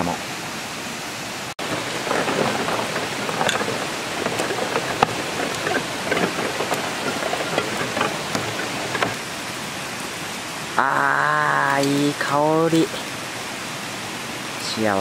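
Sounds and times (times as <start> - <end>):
ice cans and bottles clinking: 1.6 - 9.2.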